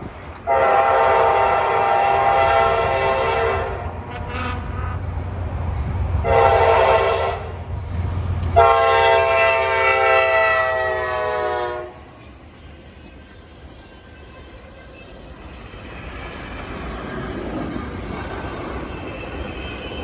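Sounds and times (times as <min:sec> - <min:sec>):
passing train rumble: 0:00.0 - 0:20.0
locomotive air horn blasts: 0:00.4 - 0:05.0, 0:06.2 - 0:07.6, 0:08.5 - 0:12.1.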